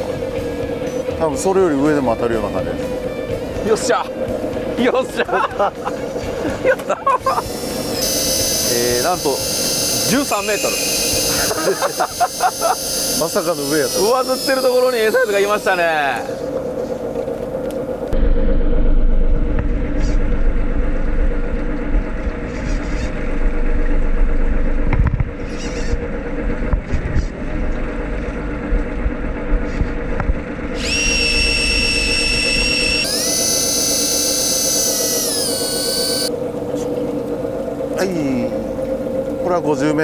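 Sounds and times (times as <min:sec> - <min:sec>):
steady low hum: 0:00.0 - 0:40.0
electric fishing reel motor whine: 0:07.1 - 0:18.2, 0:22.5 - 0:39.3.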